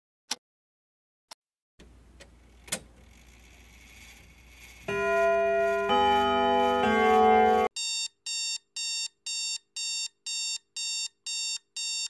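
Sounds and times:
alarm tone: 4.9 - 12.0.

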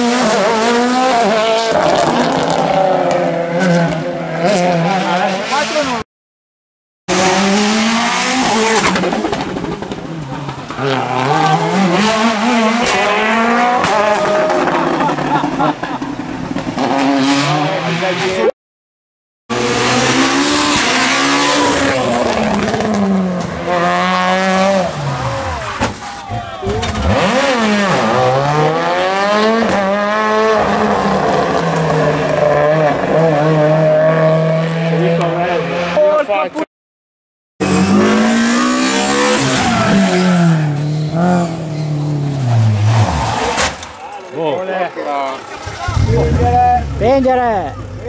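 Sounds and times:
car engine revving high: 7.1 - 9.6, 19.5 - 25.6, 26.8 - 36.0, 37.6 - 43.5.

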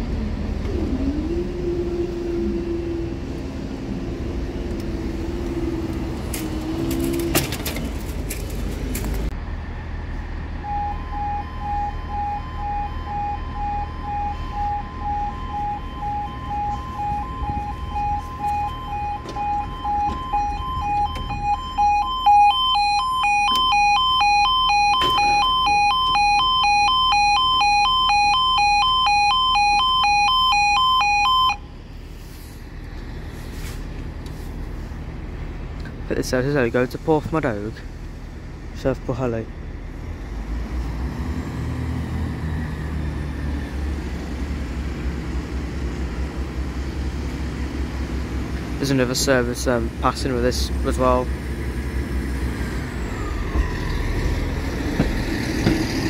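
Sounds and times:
two-note crossing alarm: 10.6 - 31.7.

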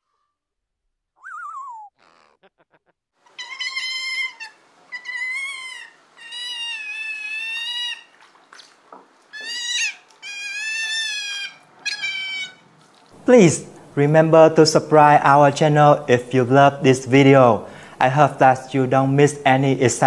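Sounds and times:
animal wavering cries: 1.2 - 2.7, 3.3 - 8.2, 9.3 - 12.8.

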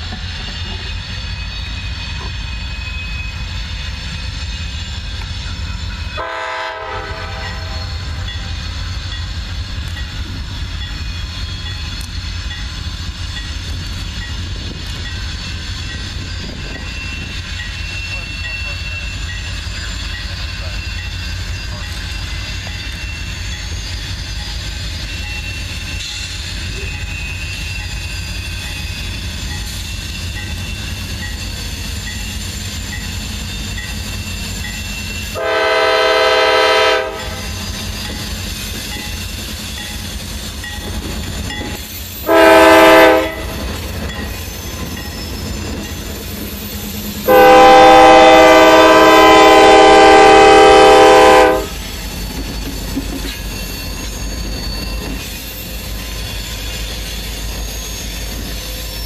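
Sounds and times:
freight train passing rumble: 0.0 - 59.0
locomotive air horn blasts: 6.2 - 7.9, 35.4 - 37.5, 42.3 - 43.5, 47.3 - 51.8.

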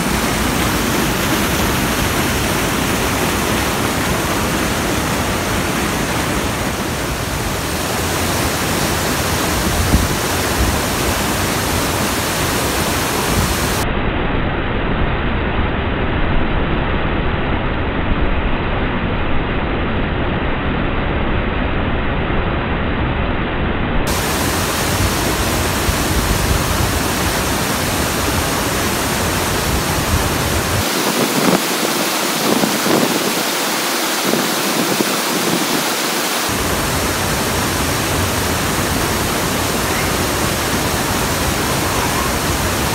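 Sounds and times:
waterfall rushing: 0.0 - 13.8, 24.1 - 42.9.

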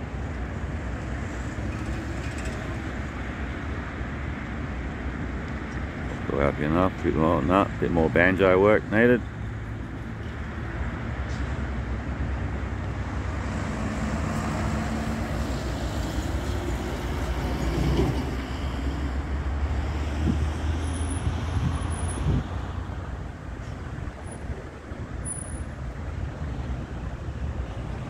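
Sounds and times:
engine rumble: 0.0 - 28.0
traffic noise: 0.0 - 28.0.

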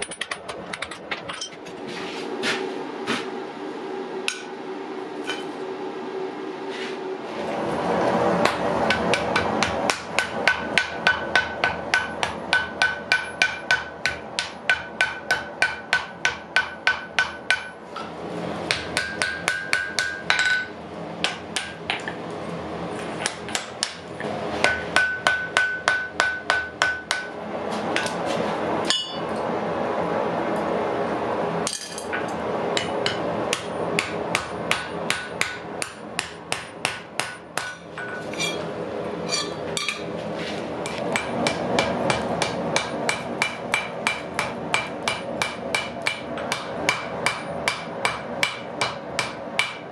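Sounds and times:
hammer striking iron on an anvil: 8.4 - 18.1, 18.7 - 22.2, 23.2 - 27.4, 28.9 - 29.4, 31.7 - 38.7, 39.3 - 40.1, 40.8 - 49.9.

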